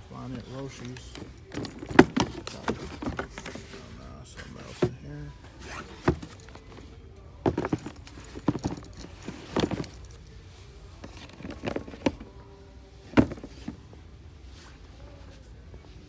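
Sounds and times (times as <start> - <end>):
cardboard boxes rustling and knocking: 0.7 - 5.0, 5.7 - 10.1, 11.0 - 12.3, 13.1 - 13.8.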